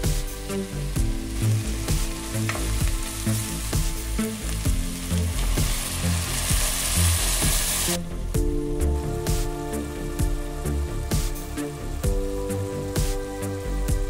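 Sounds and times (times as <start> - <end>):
food sizzling in pot: 0.0 - 8.0
background music with steady beat: 0.0 - 14.0.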